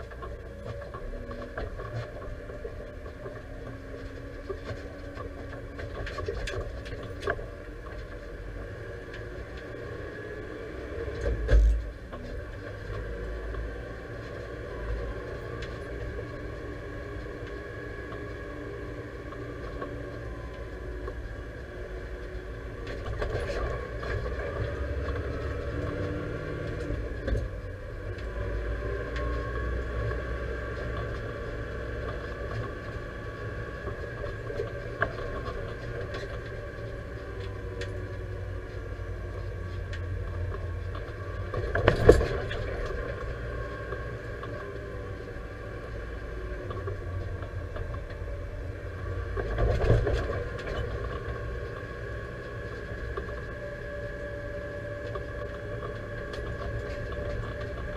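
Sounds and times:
tractor diesel engine running: 0.0s - 57.9s.

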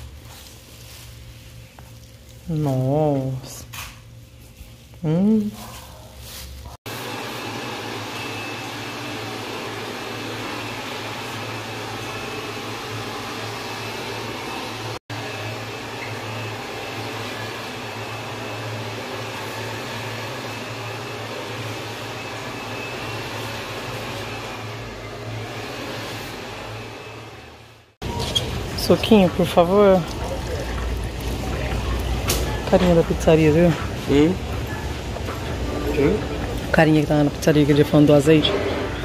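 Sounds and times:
hair dryer blowing: 6.9s - 27.6s.

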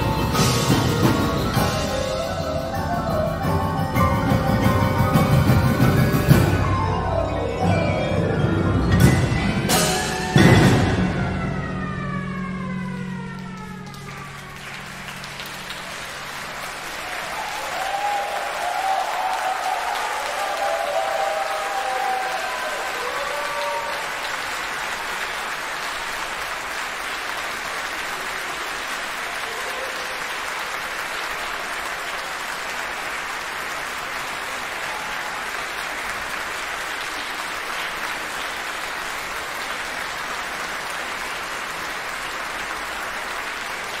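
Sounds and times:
audience applauding: 0.0s - 6.8s, 9.7s - 44.0s.

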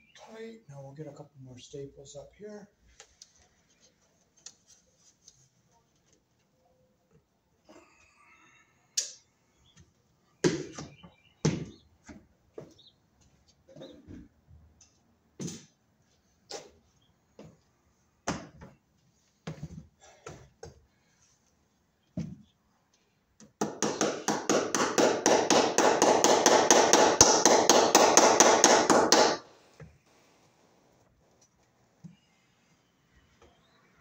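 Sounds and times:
hammer hitting staples into wood: 23.6s - 29.4s.

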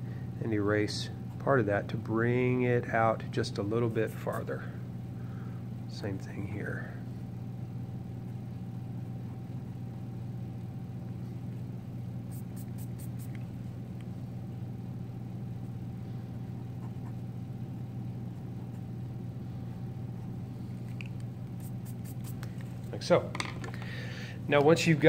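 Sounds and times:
low hum: 0.0s - 25.0s
eraser scratching on paper: 12.3s - 13.4s, 21.6s - 22.4s.

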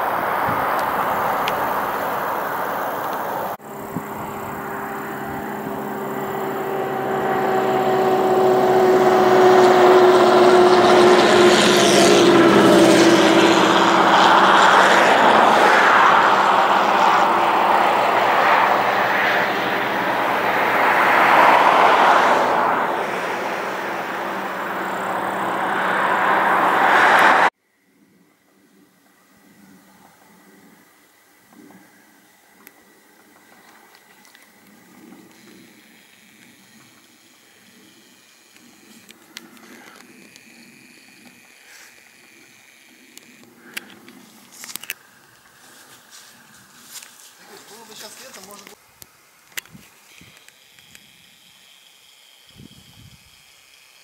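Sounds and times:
passing engine drone: 0.0s - 27.5s
steady rushing noise: 0.0s - 27.5s.

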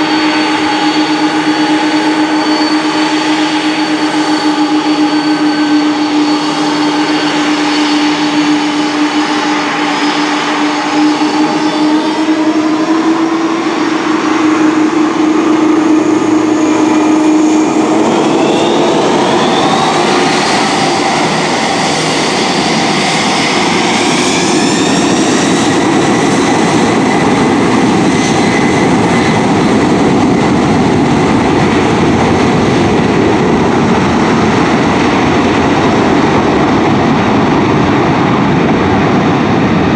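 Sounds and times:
jet engines whining: 0.0s - 39.9s.

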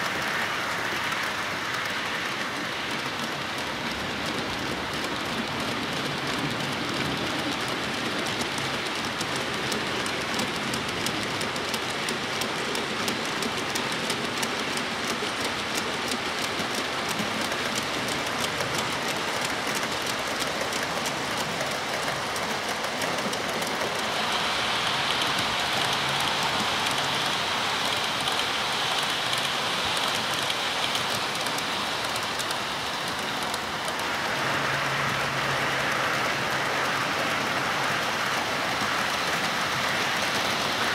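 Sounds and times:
model train wheels rattling on rail: 0.0s - 40.9s.

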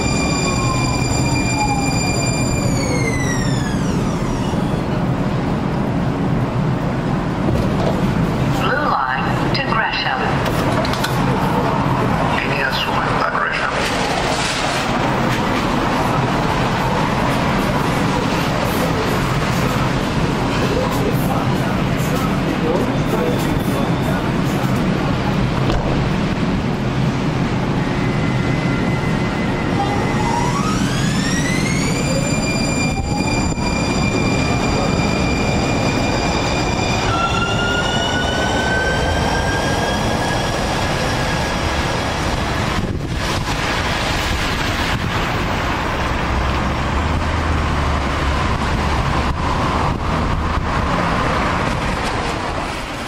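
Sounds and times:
steady rain: 42.2s - 49.3s.

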